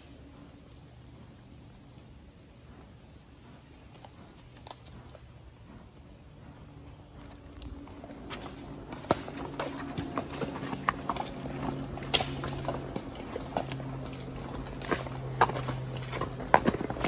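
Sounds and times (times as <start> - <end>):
faint low hum: 0.0 - 17.0
horse hooves on dirt trail: 0.0 - 17.0.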